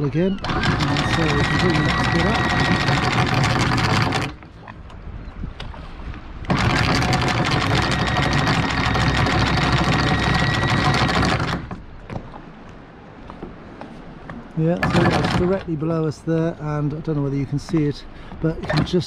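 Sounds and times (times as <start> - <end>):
anchor windlass motor whining: 0.0 - 12.1, 14.7 - 15.7.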